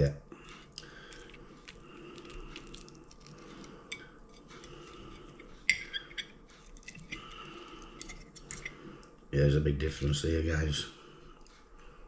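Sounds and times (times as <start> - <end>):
person chewing: 0.4 - 9.2.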